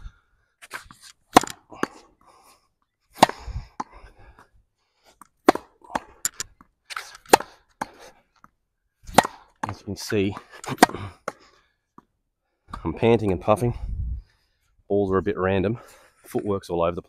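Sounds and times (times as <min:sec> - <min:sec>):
racquet striking tennis ball: 0:01.3 - 0:02.0, 0:03.1 - 0:04.0, 0:05.4 - 0:08.0, 0:09.0 - 0:11.4.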